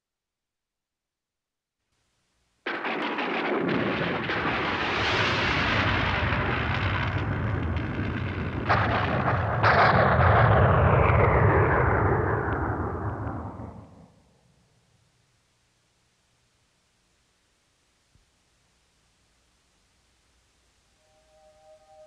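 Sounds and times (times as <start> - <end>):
thunderclap: 2.7 - 14.4
thunder rumbling: 2.7 - 14.5.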